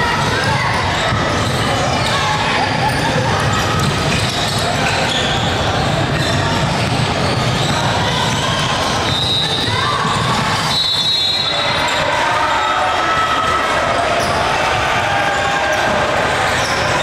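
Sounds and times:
murmur of voices: 0:00.0 - 0:17.0
ball bouncing on gym floor: 0:06.1 - 0:10.9.

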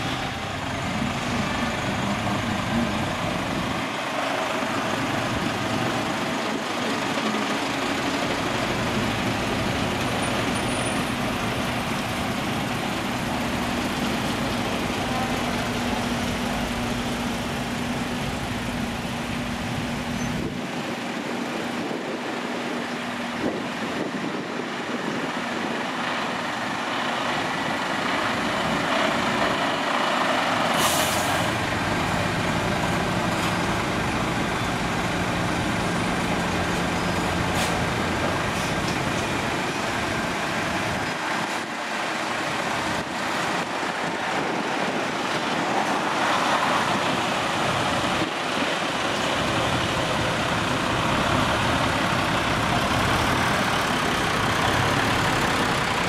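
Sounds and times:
diesel truck engine drone: 0:00.0 - 0:56.0
air brake hiss: 0:30.8 - 0:31.5.

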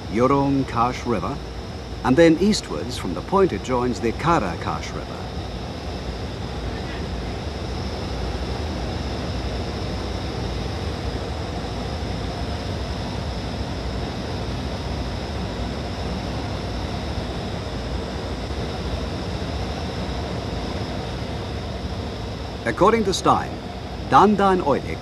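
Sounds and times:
aircraft engine drone: 0:00.0 - 0:25.0.

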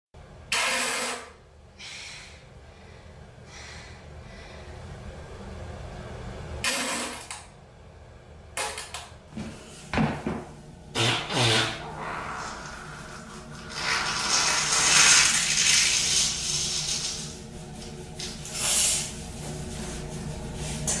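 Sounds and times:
short hissing farts: 0:10.9 - 0:12.2.

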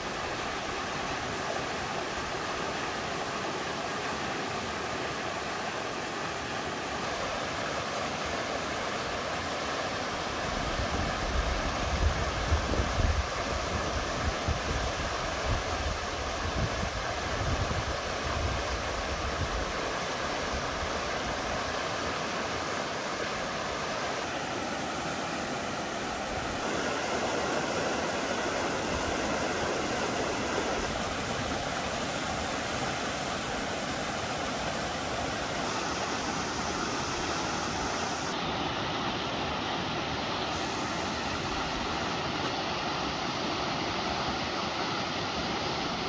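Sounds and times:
forest ambience rushing noise: 0:00.0 - 0:46.0
wind rumble on microphone: 0:10.6 - 0:19.7.

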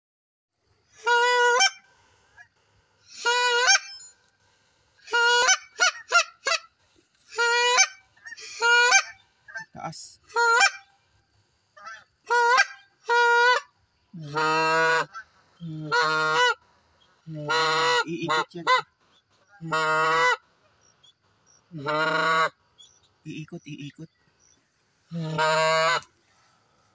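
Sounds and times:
goose honking: 0:00.9 - 0:02.5, 0:03.1 - 0:04.2, 0:05.0 - 0:11.0, 0:11.8 - 0:16.7, 0:17.3 - 0:20.9, 0:21.7 - 0:24.1, 0:25.1 - 0:26.6
goose clucking: 0:01.0 - 0:04.4, 0:05.0 - 0:11.0, 0:11.8 - 0:24.1, 0:25.1 - 0:26.5.

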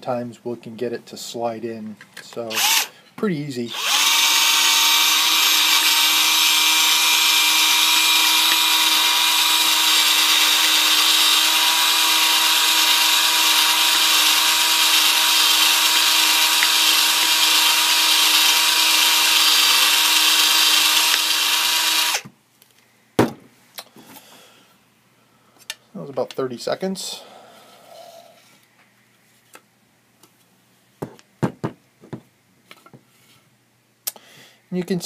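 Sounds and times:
cordless drill running: 0:02.5 - 0:02.9, 0:03.7 - 0:22.2.

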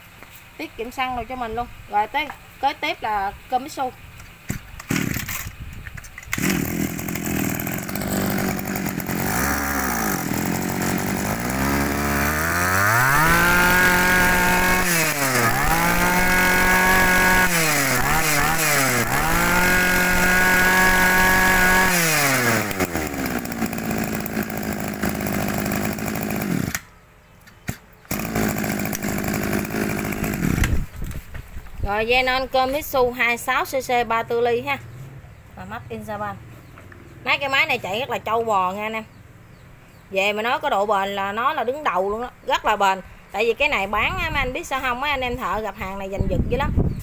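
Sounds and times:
brush cutter engine revving: 0:04.5 - 0:05.6, 0:06.2 - 0:26.9, 0:28.1 - 0:31.2.

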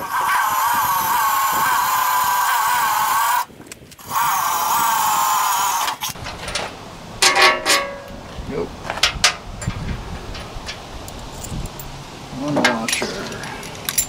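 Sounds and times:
cordless drill whining: 0:00.0 - 0:06.2.

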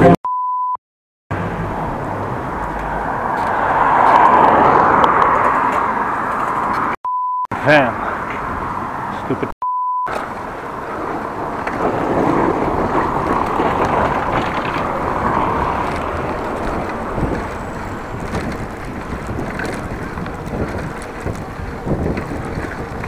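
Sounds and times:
wind rushing over microphone: 0:10.1 - 0:23.0.

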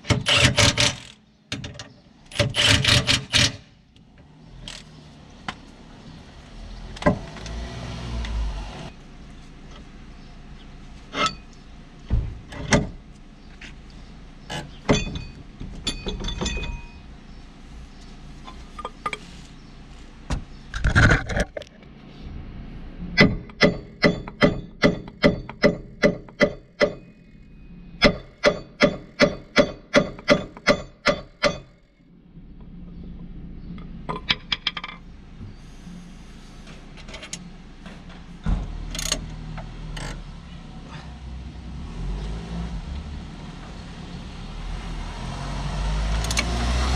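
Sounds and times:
hammer striking metal: 0:23.2 - 0:27.1, 0:28.0 - 0:31.7.

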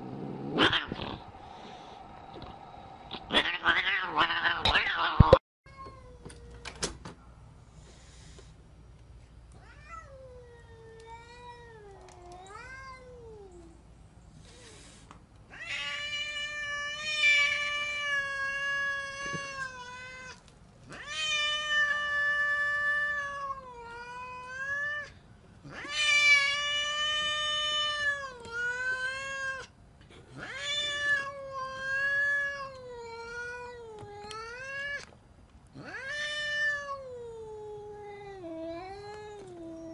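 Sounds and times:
cat yowling angrily: 0:03.3 - 0:05.4.

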